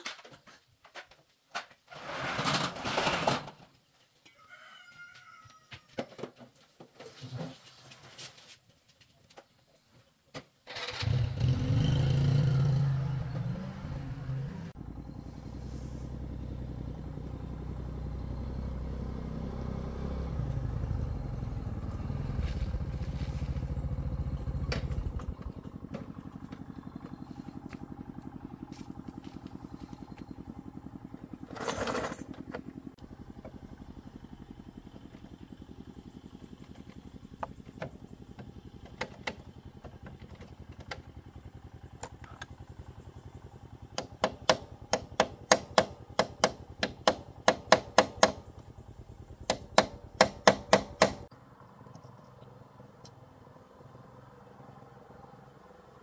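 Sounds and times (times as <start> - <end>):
motor scooter engine running: 10.8 - 51.3.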